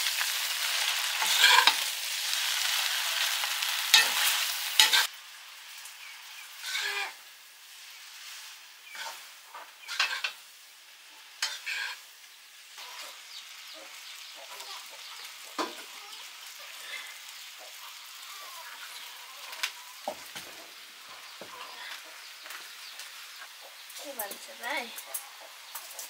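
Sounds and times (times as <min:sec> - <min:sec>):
food sizzling in a pan: 0:00.0 - 0:26.0
utensil scraping and knocking pan: 0:09.8 - 0:10.4.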